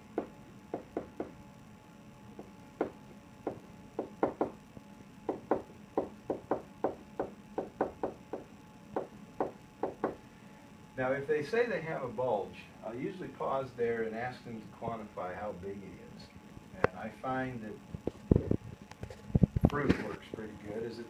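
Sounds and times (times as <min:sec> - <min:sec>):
pen tapping on whiteboard: 0:02.4 - 0:04.6.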